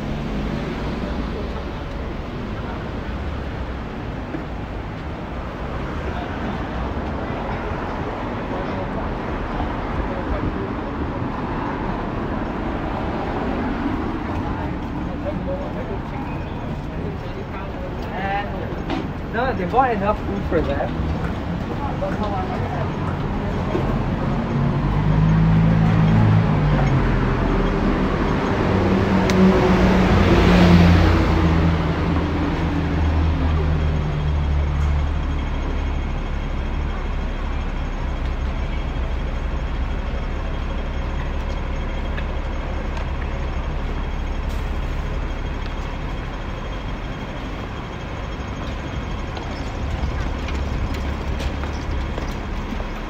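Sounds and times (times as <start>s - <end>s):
low traffic rumble: 0.0s - 53.0s
vehicle passing close by: 24.0s - 32.3s.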